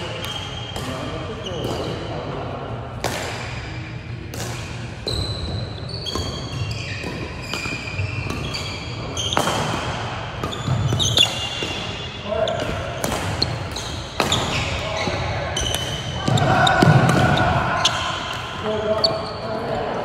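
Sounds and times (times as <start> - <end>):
rackets hitting shuttlecock: 0.1 - 2.0, 2.9 - 19.2
shoes squeaking on wooden floor: 5.1 - 9.4, 10.5 - 11.6.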